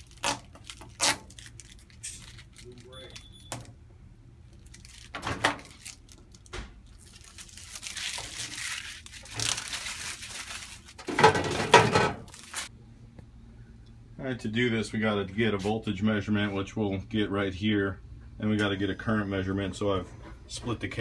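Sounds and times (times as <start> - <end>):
plastic film crinkling and tearing: 0.0 - 3.3, 4.5 - 11.2, 12.3 - 12.7.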